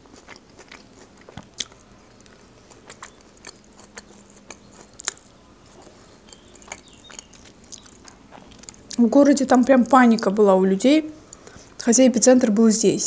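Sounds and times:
chewing crunchy salad: 0.0s - 10.4s.

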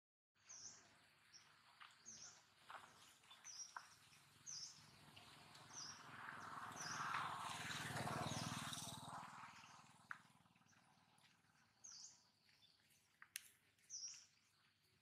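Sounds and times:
high bird chirp: 13.8s - 14.7s.

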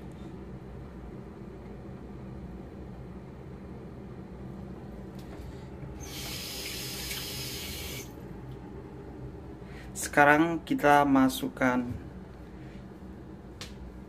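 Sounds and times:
low steady hum: 0.0s - 14.0s
water running from a tap: 6.0s - 8.1s.

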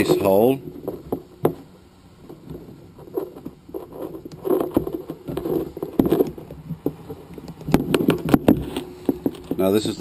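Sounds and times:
rustling of line and elastic: 0.0s - 10.0s.

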